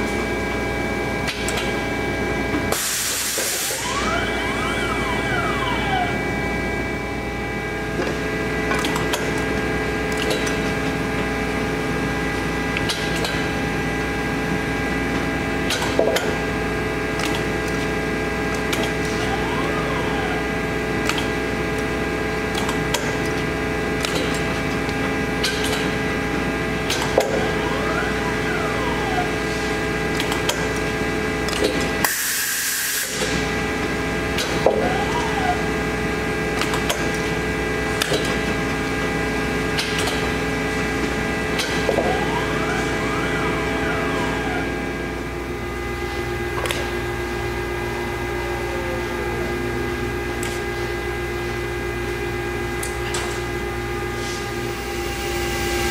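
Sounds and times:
machine humming: 0.0 - 55.9
motor whines: 3.3 - 7.8, 18.5 - 21.5, 27.0 - 30.0, 34.5 - 36.0
machine clicks: 24.0 - 24.5.

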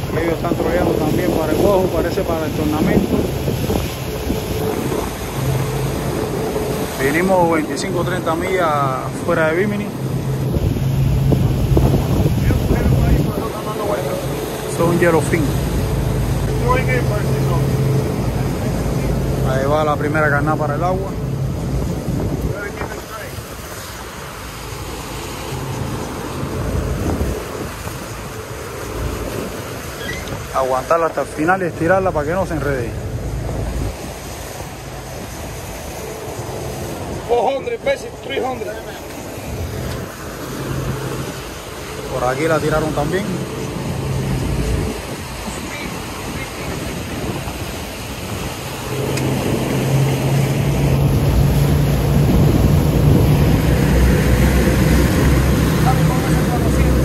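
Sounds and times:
wind buffeting microphone: 0.0 - 30.7, 31.3 - 57.0
outboard motors droning: 0.0 - 57.0
rush of boat wake: 0.0 - 57.0.

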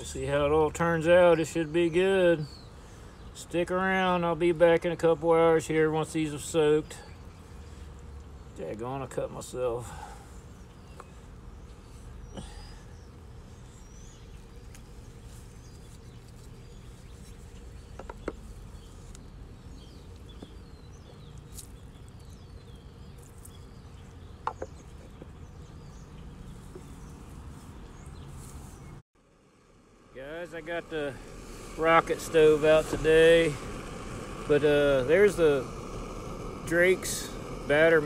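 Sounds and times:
steady low rumble: 29.2 - 38.0.

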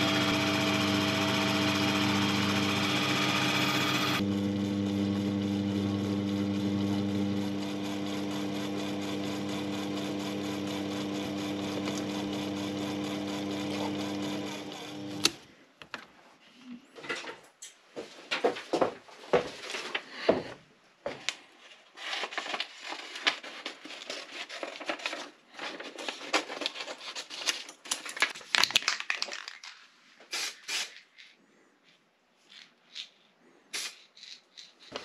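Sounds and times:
lathe motor hum: 0.0 - 15.4
lathe stopping click: 0.0 - 15.4.

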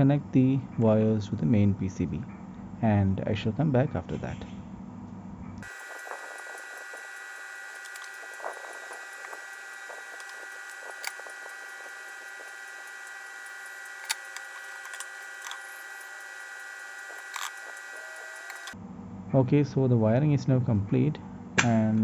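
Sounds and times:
high-pitched electrical whine: 5.5 - 18.8.

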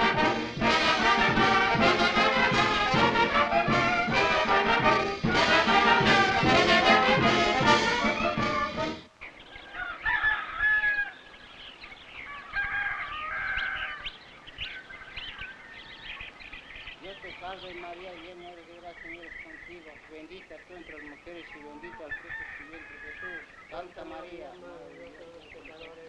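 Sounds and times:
brass band playing: 0.0 - 9.1, 23.8 - 25.3
birds chirping and calling: 7.8 - 26.0.

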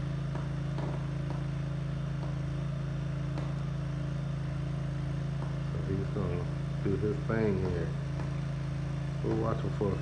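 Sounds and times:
small engine droning: 0.0 - 10.0.

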